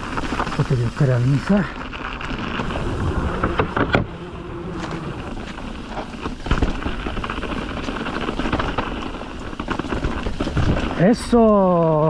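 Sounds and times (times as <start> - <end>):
bike rattling and knocking: 0.0 - 2.8, 4.8 - 12.0
bike tyres rolling over stones: 0.0 - 12.0
wind noise on microphone: 2.4 - 11.0.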